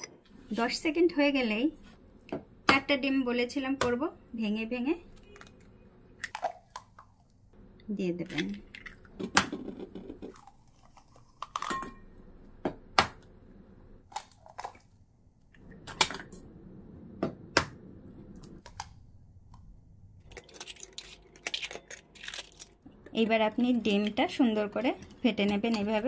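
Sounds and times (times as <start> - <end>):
eggshells cracking: 10.3 - 11.7, 20.2 - 22.8.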